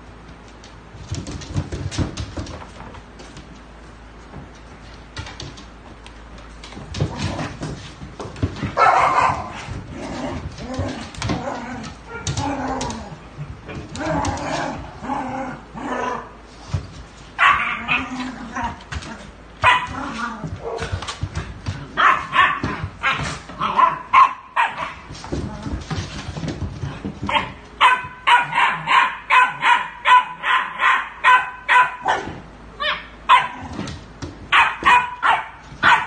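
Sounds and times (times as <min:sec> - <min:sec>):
dogs barking and yipping: 0:08.8 - 0:09.6, 0:17.4 - 0:18.0, 0:22.0 - 0:25.1, 0:27.3 - 0:33.6, 0:34.5 - 0:36.0.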